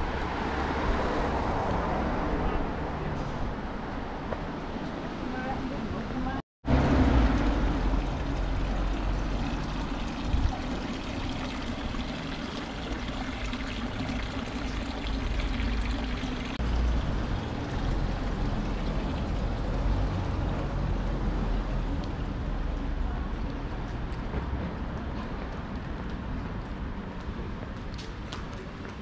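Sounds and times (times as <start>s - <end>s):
running water: 6.7s - 21.1s.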